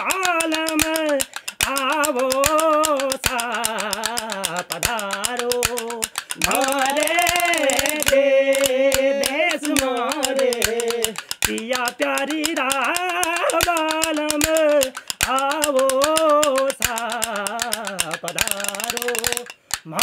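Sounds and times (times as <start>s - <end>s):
man singing ornamented folk song: 0.0s - 20.0s
wooden clappers clacking: 0.0s - 20.0s
singer breathing: 1.3s - 1.6s, 11.2s - 11.4s, 14.9s - 15.2s, 19.5s - 19.9s.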